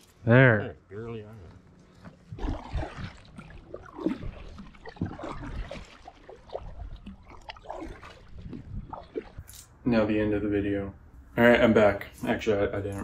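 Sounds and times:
water splashes and drips: 2.2 - 9.6.

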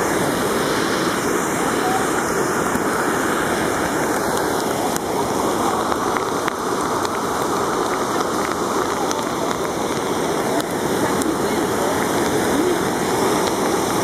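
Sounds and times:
floodwater rushing: 0.0 - 14.0.

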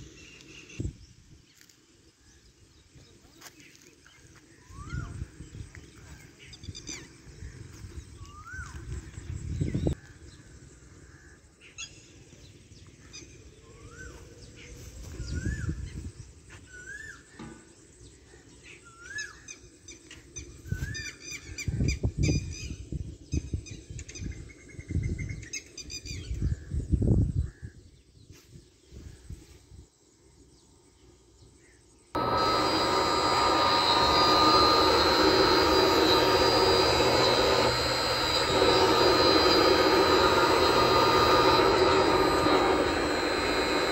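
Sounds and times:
electric motor humming: 32.2 - 43.9
high-pitched whining tones: 32.2 - 43.9
low rumble: 32.2 - 43.9.

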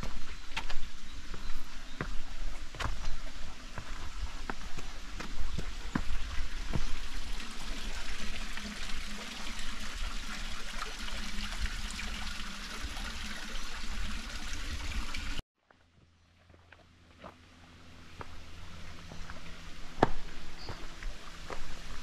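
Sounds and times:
footstep clicks: 0.0 - 7.0
creek water splashing over rocks: 0.0 - 15.4.

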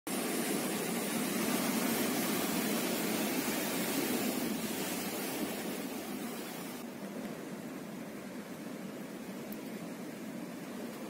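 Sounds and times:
surf breaking against rocks: 0.1 - 6.9.

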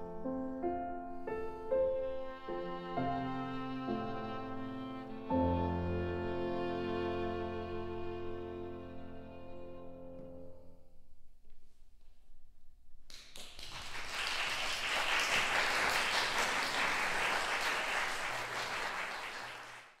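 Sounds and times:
audience applauding: 13.1 - 20.0.

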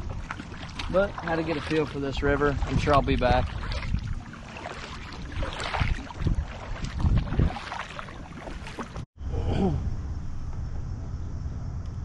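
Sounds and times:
paddle splashing in water: 0.0 - 9.0
wind on microphone: 1.4 - 9.5
low rumble: 9.2 - 12.0
sigh: 9.3 - 9.9.

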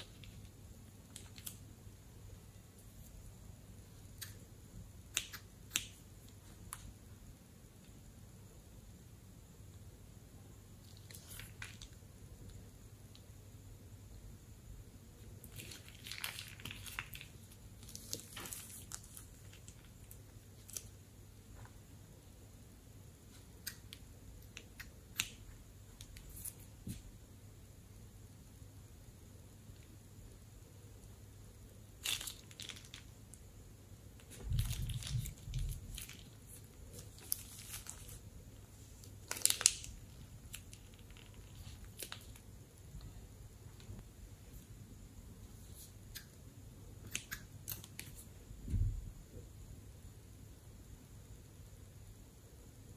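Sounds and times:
slime squishing and crackling: 10.8 - 12.0, 15.4 - 20.9, 32.0 - 33.1, 34.2 - 38.3, 39.0 - 42.4
plastic bag crinkling: 15.4 - 20.8, 32.0 - 33.2, 34.2 - 38.3, 39.0 - 42.4.

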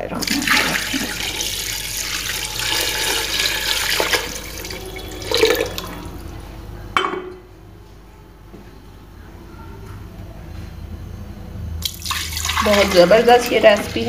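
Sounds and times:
water pouring into a pot: 0.2 - 6.3, 11.8 - 14.0.

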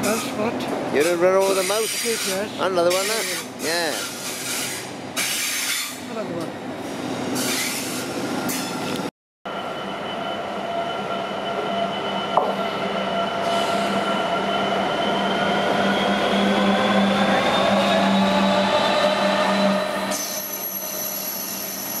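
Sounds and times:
train running past: 0.0 - 22.0
diesel locomotive engine droning: 8.0 - 22.0.

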